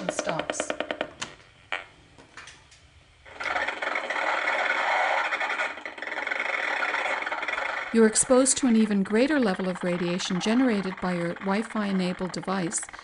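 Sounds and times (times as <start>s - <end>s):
meter pulsing: 3.2s - 13.0s.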